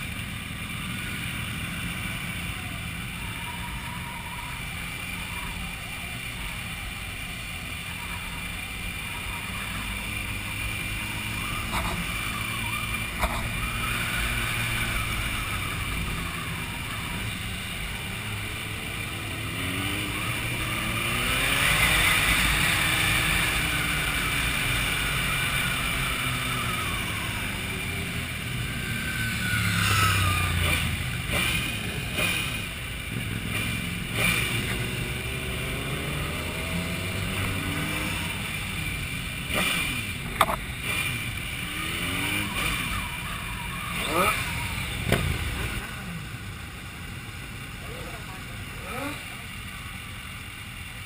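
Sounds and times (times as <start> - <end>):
motorcycle engines revving: 0.0 - 51.0.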